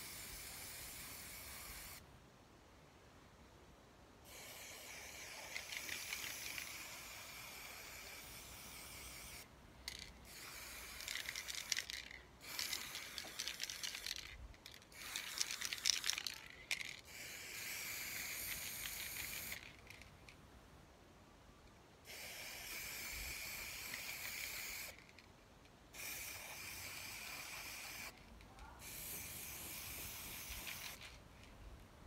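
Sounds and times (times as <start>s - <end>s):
spray paint can hissing: 0.0s - 2.0s, 4.3s - 20.1s, 22.0s - 25.2s, 25.9s - 31.2s.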